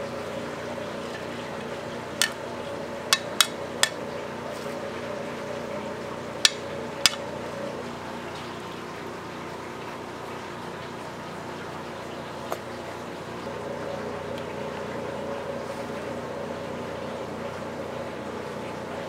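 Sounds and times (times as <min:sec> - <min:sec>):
kitchen mechanical hum: 0:00.0 - 0:19.0.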